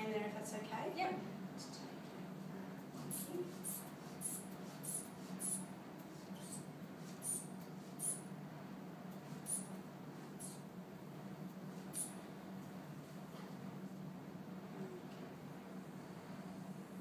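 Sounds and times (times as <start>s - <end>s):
inflation bulb squeaking: 7.2s - 8.2s.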